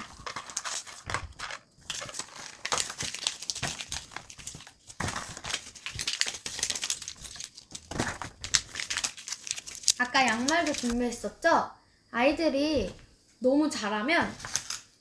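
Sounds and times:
paper crumpling: 0.0s - 11.1s, 14.3s - 14.9s.

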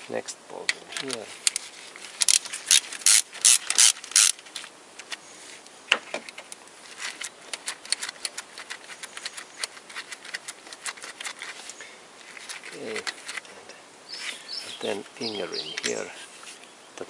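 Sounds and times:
ratchet wrench clicking: 2.2s - 4.4s.

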